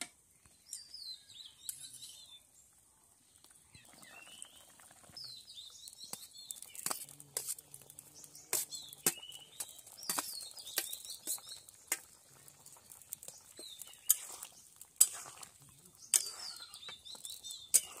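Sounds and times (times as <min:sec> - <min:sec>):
small birds chirping: 0:00.2 - 0:18.0
metal spatula clinking on steel: 0:13.7 - 0:14.4, 0:16.1 - 0:16.8.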